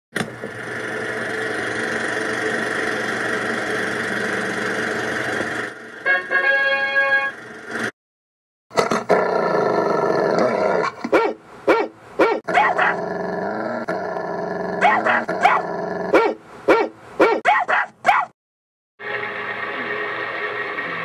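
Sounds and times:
dog growling: 0:08.8 - 0:11.0, 0:12.4 - 0:16.3
dog barking: 0:11.1 - 0:13.0, 0:14.8 - 0:18.3.

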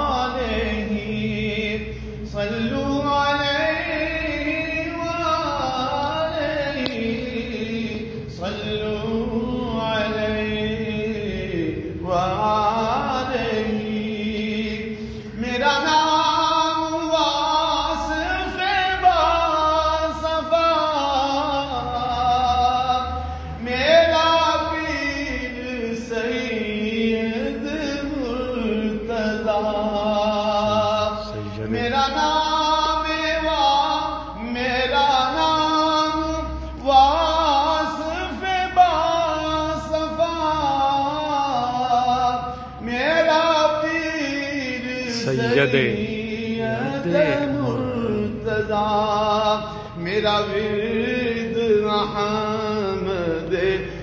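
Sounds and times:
man singing unaccompanied: 0:00.0 - 0:54.0.

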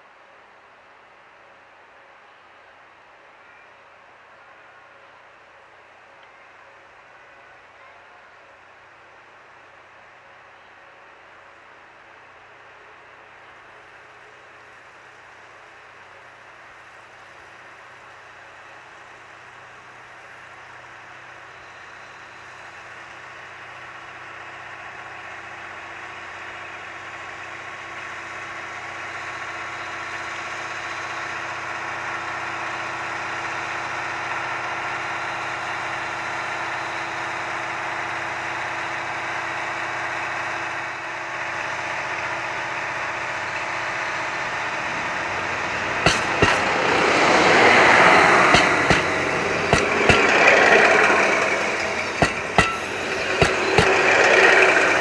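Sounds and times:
diesel train engine drone: 0:00.0 - 0:55.0
train rushing noise: 0:13.6 - 0:55.0
wheels clacking over rail joints: 0:34.1 - 0:55.0.

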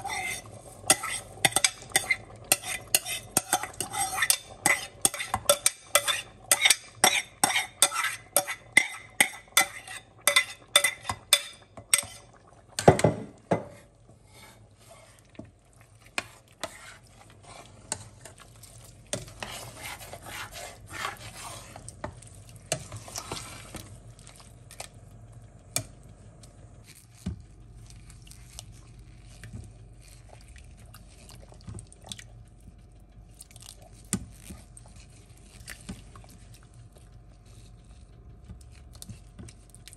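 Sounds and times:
metal spoon scraping a bowl: 0:00.0 - 0:12.4, 0:13.6 - 0:15.3, 0:16.0 - 0:23.9
spoon stirring in a pot: 0:00.0 - 0:25.0, 0:33.7 - 0:39.9.

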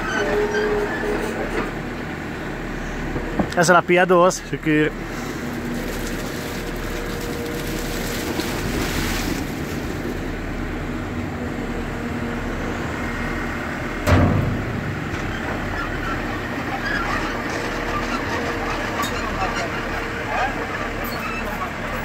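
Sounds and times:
grapes emptying from bin: 0:05.2 - 0:10.3
loud clunk: 0:14.0 - 0:15.6.

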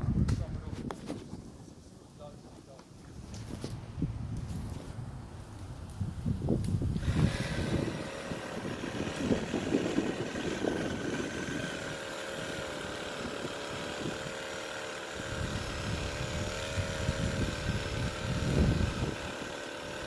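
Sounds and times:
wind gusts on microphone: 0:00.0 - 0:14.4, 0:15.2 - 0:19.6
engine running steadily: 0:06.6 - 0:20.0.

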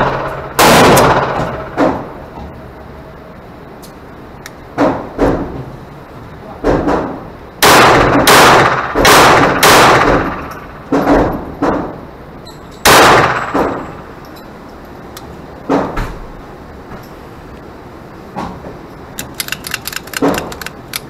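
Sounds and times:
pistol shots with ringing echo: 0:07.6 - 0:10.5, 0:12.9 - 0:14.1.

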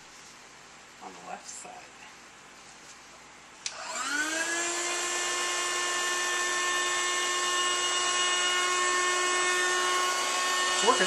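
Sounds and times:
vacuum sealer pump whining: 0:03.7 - 0:11.0.

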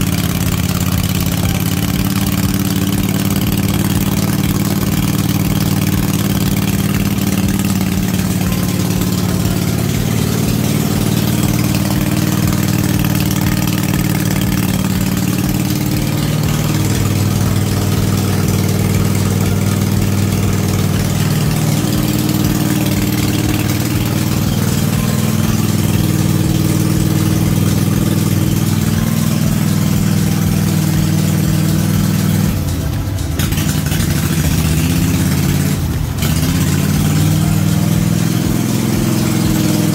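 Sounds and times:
mower engine running: 0:00.0 - 0:39.9.

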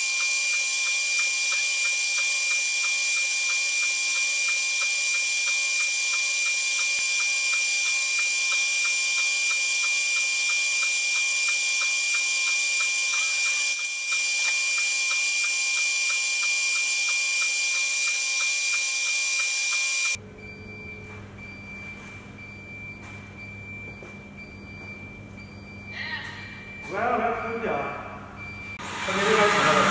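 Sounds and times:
router spindle whining: 0:00.0 - 0:20.2, 0:28.8 - 0:29.9.

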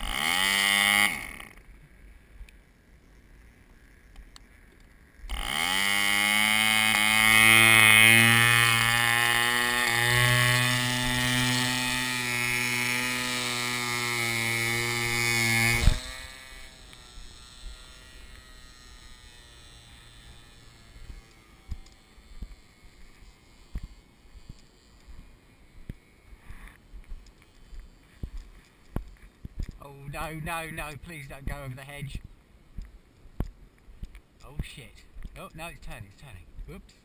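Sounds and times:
model plane engine running: 0:00.0 - 0:02.1, 0:05.0 - 0:29.2.

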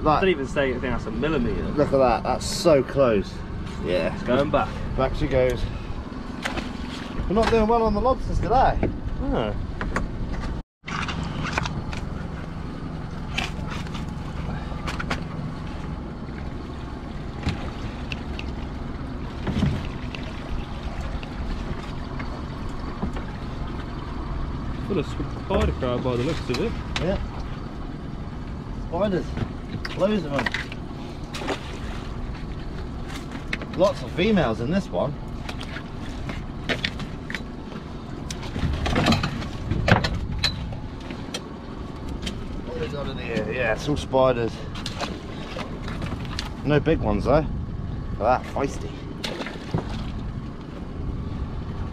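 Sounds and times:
boat motor running: 0:00.0 - 0:51.9
low rumble: 0:43.7 - 0:51.9.

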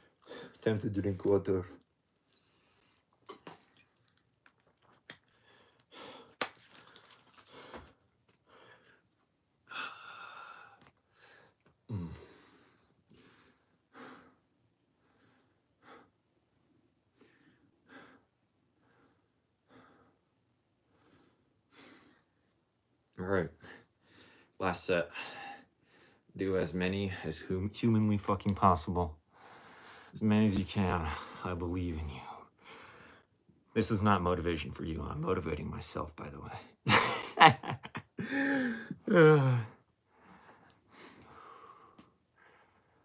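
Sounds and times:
man breathing hard: 0:09.7 - 0:16.2, 0:38.2 - 0:43.0
man sighing: 0:11.9 - 0:12.6, 0:38.2 - 0:39.8.

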